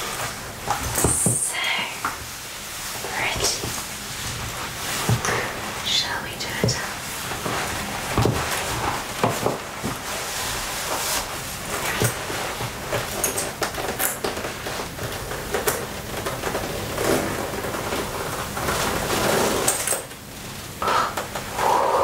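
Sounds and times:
leather and fabric rustling: 2.2s - 5.9s, 6.5s - 19.9s.

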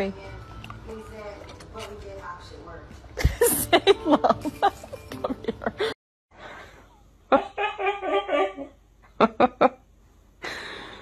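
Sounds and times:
person laughing in bursts: 3.2s - 6.0s.

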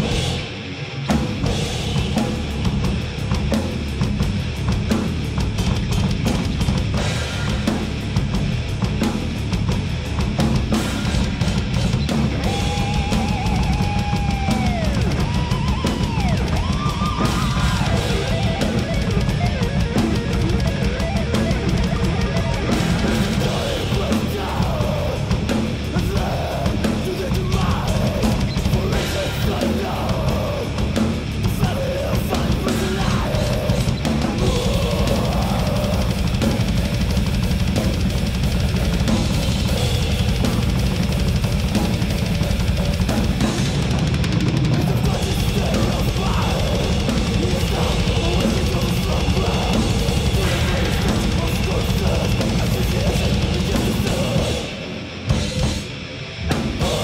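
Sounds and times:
acoustic drum kit: 0.0s - 57.0s
heavy metal band playing: 0.0s - 57.0s
sliding lead guitar line: 12.1s - 25.0s.

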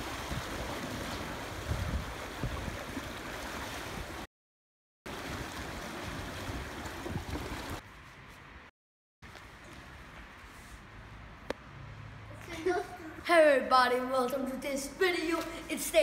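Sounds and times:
water churning in a pool: 0.0s - 4.3s, 5.1s - 7.8s
water rushing down a slide: 0.0s - 4.3s, 5.1s - 7.8s.

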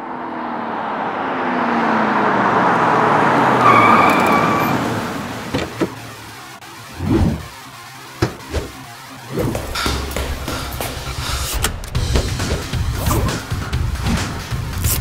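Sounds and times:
car passing by fast: 0.0s - 5.5s.

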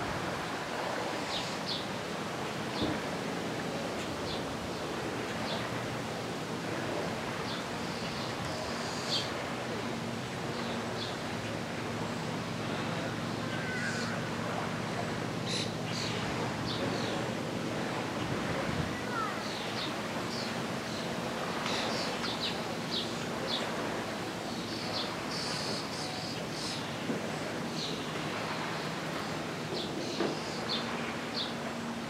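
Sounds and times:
birds chirping: 10.5s - 17.4s, 19.0s - 27.0s, 27.6s - 32.0s.

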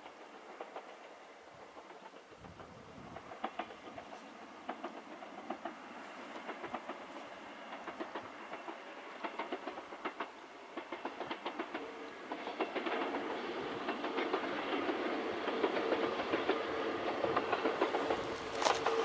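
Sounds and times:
train engine hum: 0.0s - 19.0s
train wheels clicking over track: 0.0s - 19.0s.

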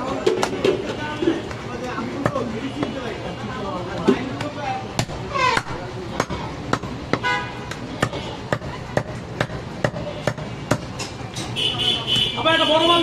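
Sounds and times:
cleaver chopping on wooden block: 5.0s - 11.6s.

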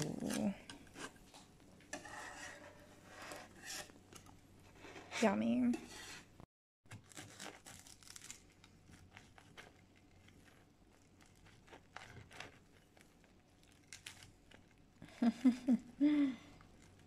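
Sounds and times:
knife sawing through crust: 1.9s - 3.9s.

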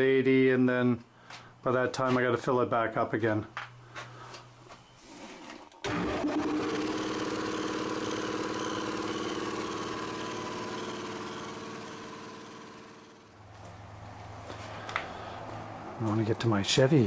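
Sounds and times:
air compressor running: 5.1s - 13.4s.

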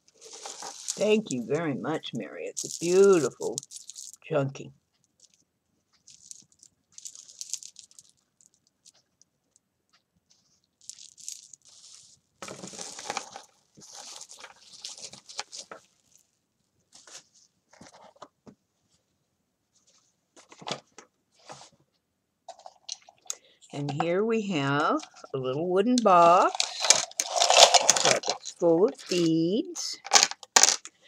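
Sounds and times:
cellophane crinkling: 0.0s - 4.3s, 6.0s - 9.0s, 10.6s - 18.2s, 26.4s - 31.0s.

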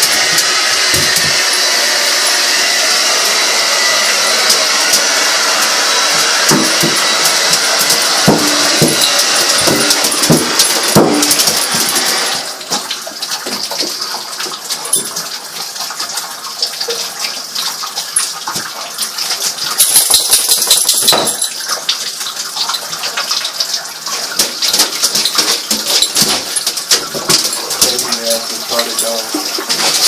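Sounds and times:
water running in bathtub: 0.0s - 30.0s
small clicks and splashes: 6.7s - 30.0s.

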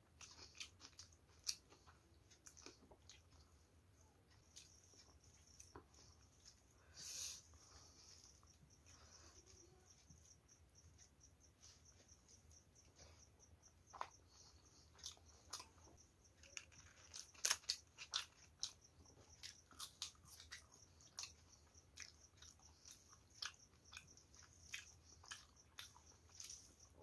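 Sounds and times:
chewing and mouth sounds: 0.0s - 6.8s, 7.6s - 27.0s.

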